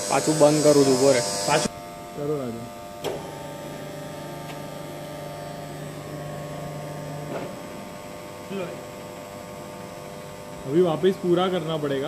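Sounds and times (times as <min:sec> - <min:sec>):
electric motors humming: 0:00.0 - 0:12.0.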